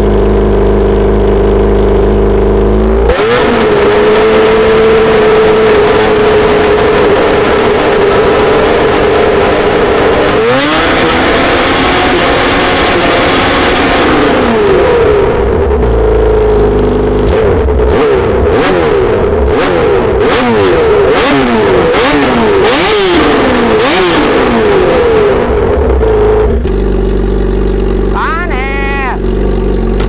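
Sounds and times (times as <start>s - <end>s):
motorcycle engine idling: 0.0s - 3.0s, 24.8s - 30.0s
motorcycle engine revving: 0.0s - 30.0s.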